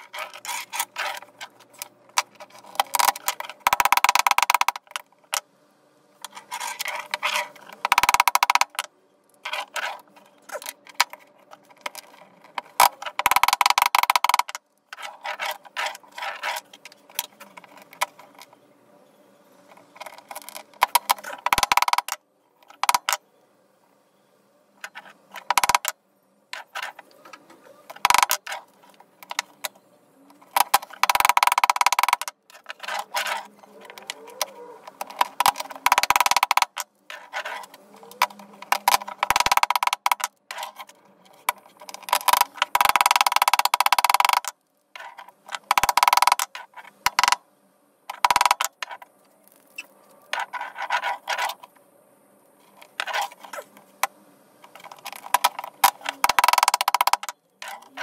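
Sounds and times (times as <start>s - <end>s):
hand tool scraping roller: 0.0s - 2.9s, 6.3s - 7.8s, 15.0s - 16.8s.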